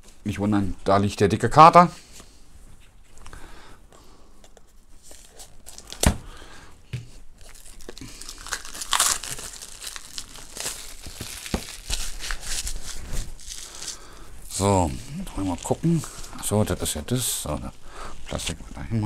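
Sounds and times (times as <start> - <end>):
plastic wrap tearing and crinkling: 5.0 - 6.3, 7.4 - 14.8
knife slitting plastic wrap: 8.4 - 13.9.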